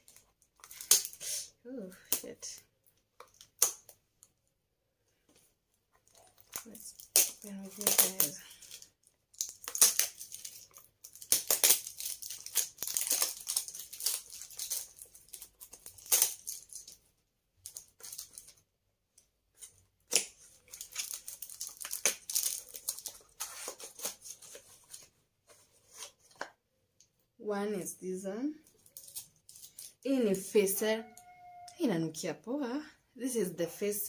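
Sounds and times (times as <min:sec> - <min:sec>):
packaging rustling and tearing: 0:06.0 - 0:17.0, 0:17.6 - 0:18.6, 0:19.6 - 0:26.4, 0:28.8 - 0:30.0.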